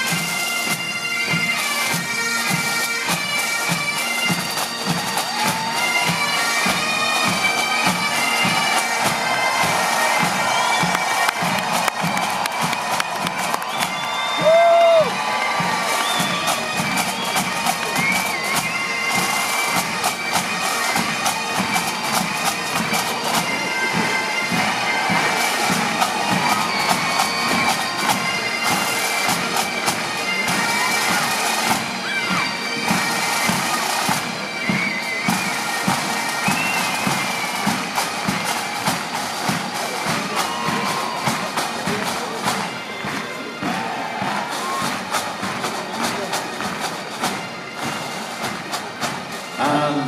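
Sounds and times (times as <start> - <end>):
bagpipes playing melody: 0.0 - 50.0
fast drumming: 3.7 - 50.0.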